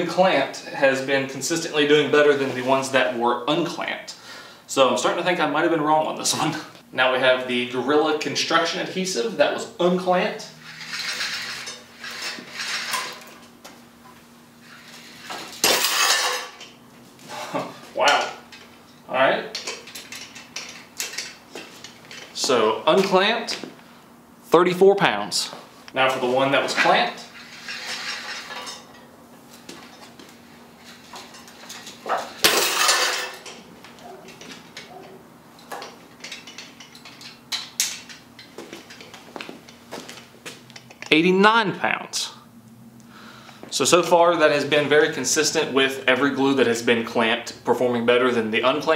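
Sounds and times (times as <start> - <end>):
chain and weight plates clattering: 10.6 - 13.5, 15.2 - 16.7, 26.9 - 29.1, 30.8 - 39.8.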